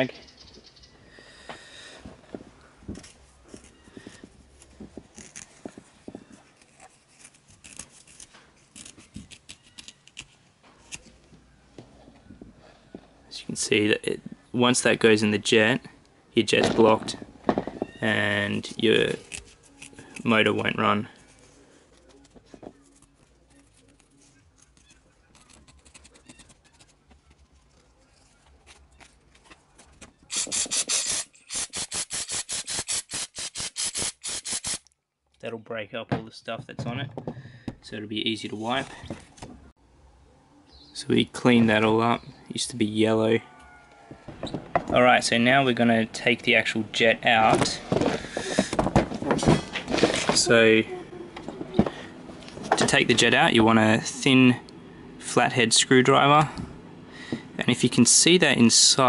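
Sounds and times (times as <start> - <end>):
rag scrubbing plastic part: 30.3 - 34.8.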